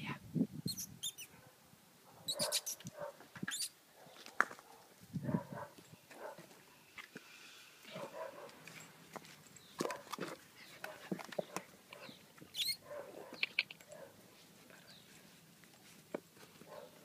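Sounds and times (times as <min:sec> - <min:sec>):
puppies whining faintly: 0:02.3 - 0:03.7
small knocks and scuffs: 0:08.4 - 0:12.5.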